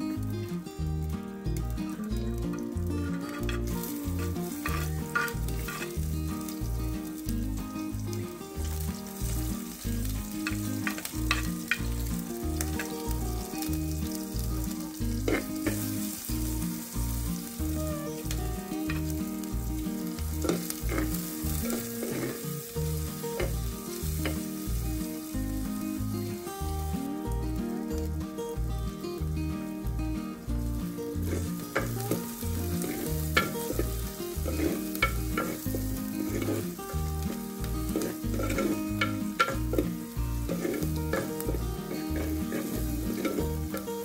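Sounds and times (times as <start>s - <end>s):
onion sizzling in oil: 0.0s - 44.0s
wooden spoon scraping a pot: 32.8s - 36.7s, 37.9s - 43.9s.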